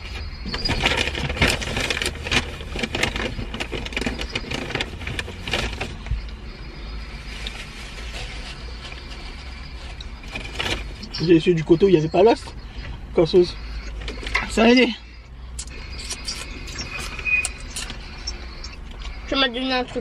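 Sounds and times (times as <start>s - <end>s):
car hum: 0.0s - 20.0s
paper packaging crinkling: 0.5s - 6.0s
person eating: 15.6s - 18.8s.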